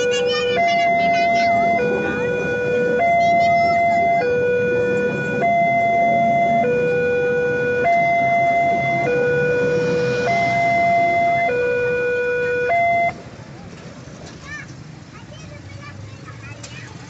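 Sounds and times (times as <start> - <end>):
two-tone crossing alarm: 0.0 - 13.2
train coaches rumbling past: 0.0 - 17.0.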